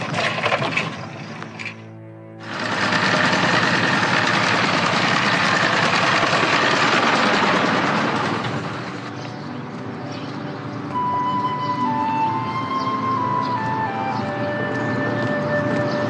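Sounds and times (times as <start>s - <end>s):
vehicle engine running: 2.4s - 9.9s.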